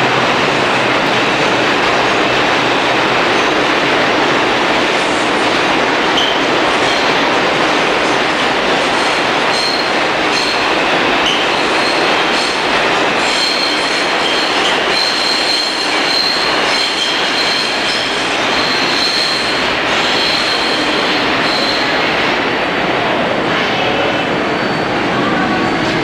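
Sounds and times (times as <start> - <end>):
subway wheels rumbling on rail: 0.0 - 26.0
high wheel squeal: 9.0 - 10.6, 13.2 - 21.9.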